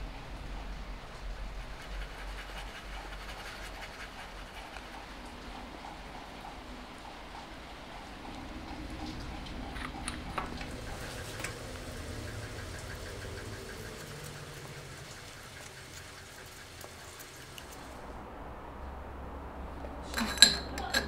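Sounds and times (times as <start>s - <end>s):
faint even ticking: 3.5s - 18.1s.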